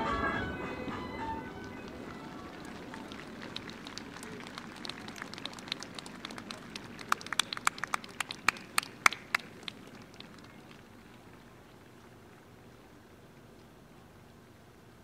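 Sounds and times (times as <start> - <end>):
faint crowd murmur: 0.0 - 14.6
spectators clapping: 1.5 - 12.5.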